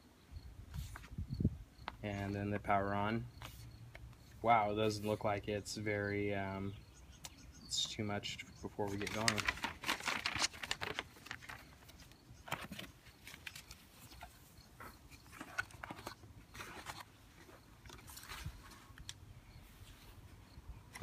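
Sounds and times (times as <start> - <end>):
paper rustling: 8.8 - 20.2.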